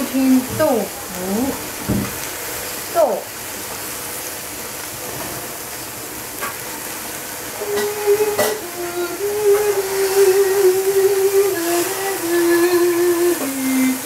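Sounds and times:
steam hissing and sizzling: 0:00.0 - 0:14.0
loud held hum: 0:07.4 - 0:14.0.

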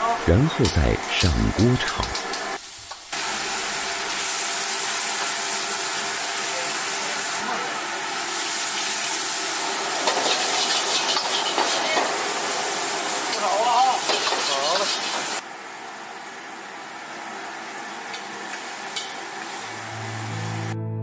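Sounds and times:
water and steam hissing: 0:00.3 - 0:15.4.

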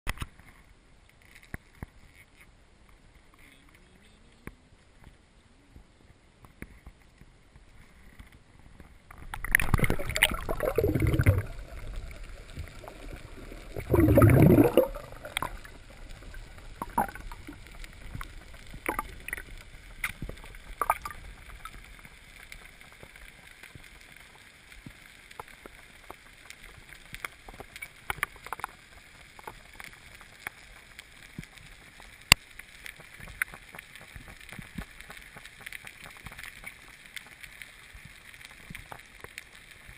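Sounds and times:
small clicks and knocks: 0:00.1 - 0:03.8, 0:15.4 - 0:39.9
water splashing and sloshing: 0:09.1 - 0:32.0
water gurgling: 0:09.1 - 0:39.9.

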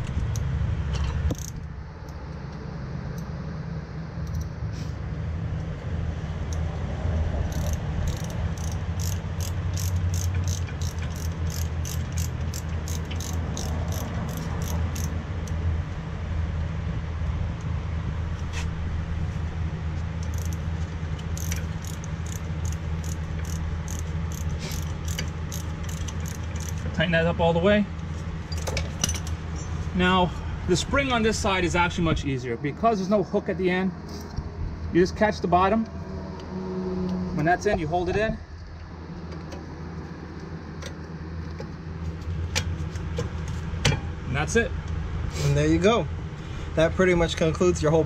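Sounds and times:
low hum: 0:00.0 - 0:45.3
ratchet wrench clicking: 0:01.3 - 0:01.7, 0:07.5 - 0:15.6, 0:20.2 - 0:26.9.

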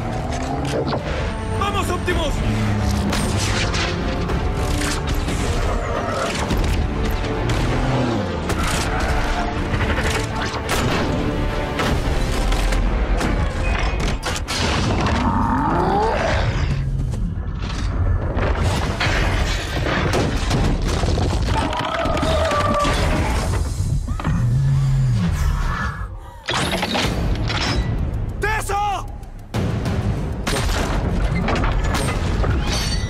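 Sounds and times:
action film music score: 0:00.0 - 0:33.0
explosions and booms: 0:18.2 - 0:21.8.

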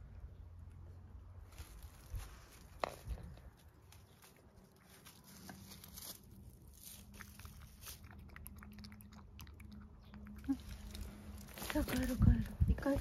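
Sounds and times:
cat lapping: 0:07.2 - 0:10.9.

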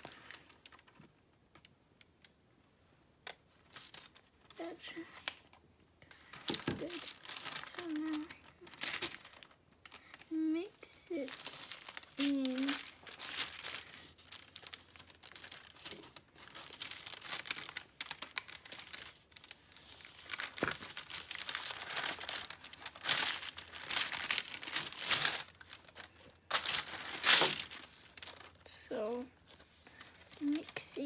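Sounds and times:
slime crinkling and tearing: 0:06.5 - 0:28.7.

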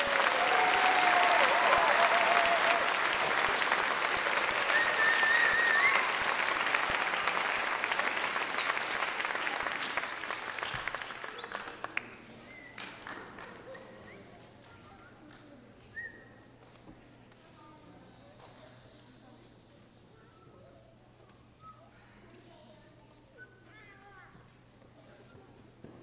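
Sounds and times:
audience applauding: 0:00.0 - 0:13.9.

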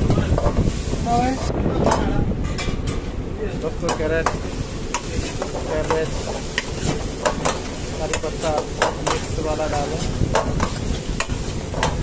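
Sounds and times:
frying oil sizzling: 0:00.0 - 0:01.6, 0:03.3 - 0:12.0.

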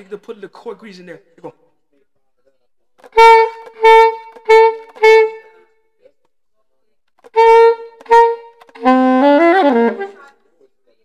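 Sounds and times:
soprano saxophone notes: 0:03.1 - 0:05.6, 0:07.3 - 0:10.3.

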